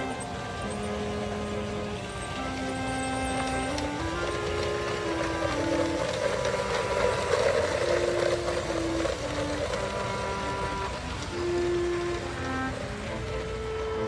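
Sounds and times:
background music melody: 0:00.0 - 0:14.0
model train whirring and rattling: 0:00.0 - 0:14.0.

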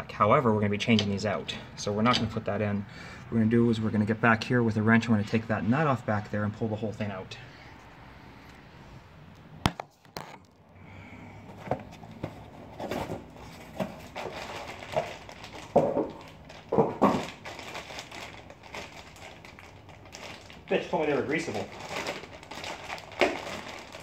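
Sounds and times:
rustling and crinkling: 0:11.4 - 0:24.0.

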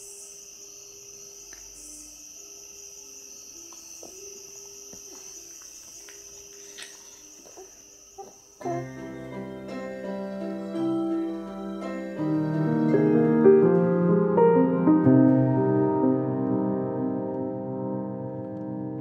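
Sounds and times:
piano music: 0:08.6 - 0:19.0.

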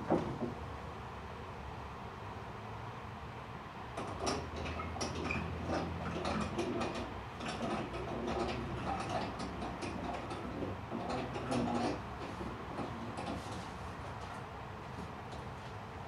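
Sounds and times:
rope creaking through pulleys: 0:04.0 - 0:13.8.

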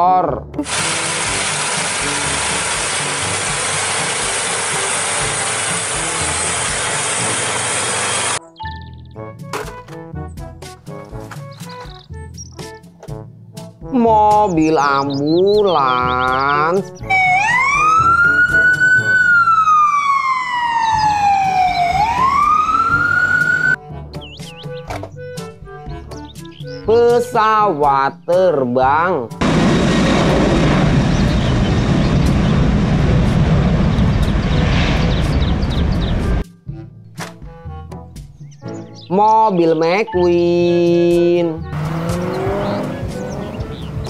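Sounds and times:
loud steady hiss: 0:00.6 - 0:08.4
tractor engine running under load: 0:00.6 - 0:08.4, 0:29.4 - 0:34.6
ambulance siren wailing: 0:17.0 - 0:23.8.

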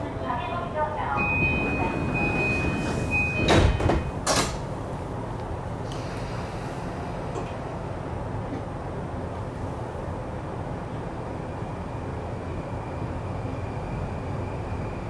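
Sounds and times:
low hum of standing train: 0:00.0 - 0:15.0
train doors knocking shut: 0:01.2 - 0:04.7.

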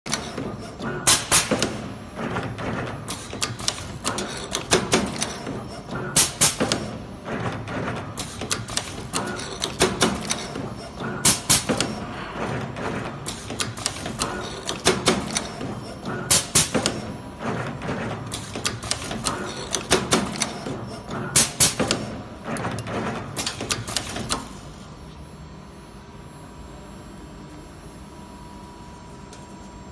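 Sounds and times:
machine sharp clacks: 0:00.1 - 0:24.5
steady background hum: 0:00.1 - 0:29.9.

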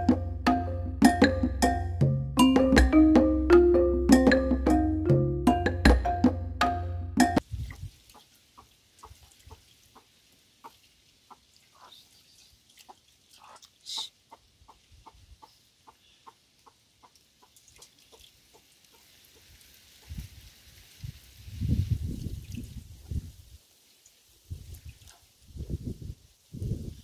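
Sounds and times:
chicken clucking: 0:08.1 - 0:12.0.

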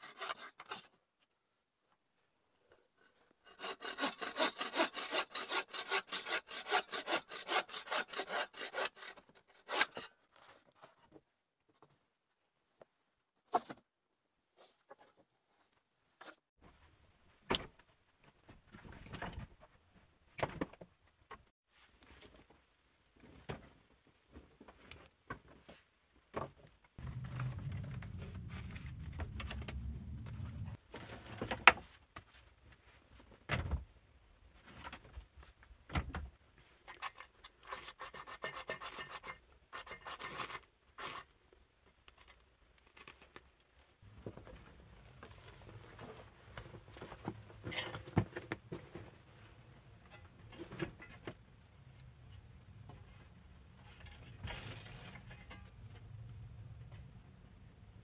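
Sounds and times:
knife scraping ferro rod: 0:00.0 - 0:00.9, 0:03.5 - 0:10.2, 0:36.9 - 0:41.3.

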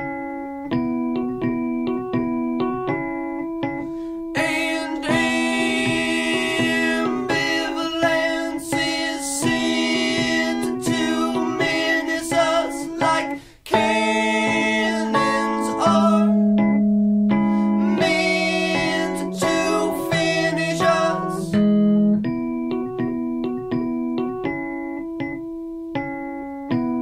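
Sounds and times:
electric keyboard and acoustic guitar: 0:00.0 - 0:27.0
man singing: 0:04.4 - 0:16.4, 0:17.8 - 0:21.6.

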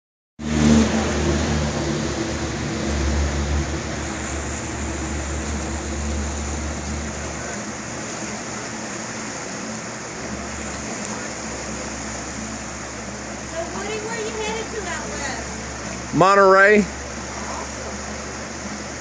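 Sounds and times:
low rumble: 0:00.4 - 0:08.1
river rapids rushing: 0:00.4 - 0:19.0.

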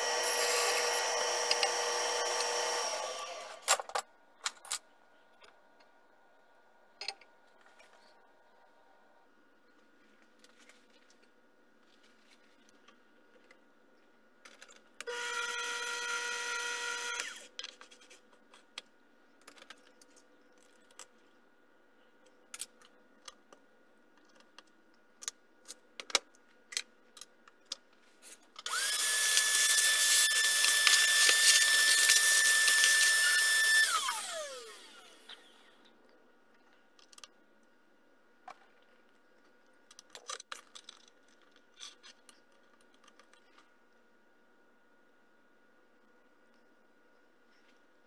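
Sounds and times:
lathe motor whining: 0:00.0 - 0:03.6, 0:28.7 - 0:35.6.

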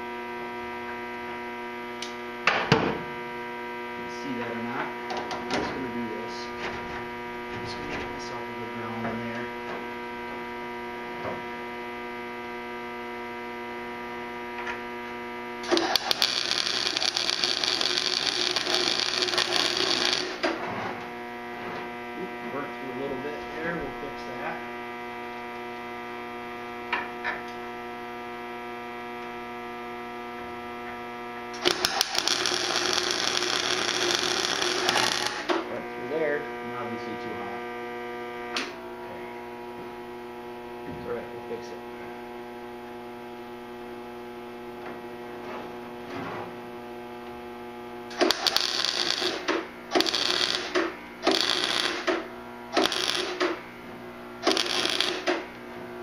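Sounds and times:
steady electrical hum: 0:00.0 - 0:56.0
welder arc crackling: 0:15.6 - 0:22.0, 0:31.5 - 0:36.2, 0:47.1 - 0:53.6, 0:54.4 - 0:55.6.

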